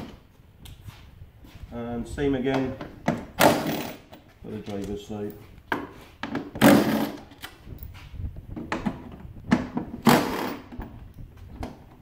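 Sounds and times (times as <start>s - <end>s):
clicks and knocks of parts handled: 2.5s - 12.0s.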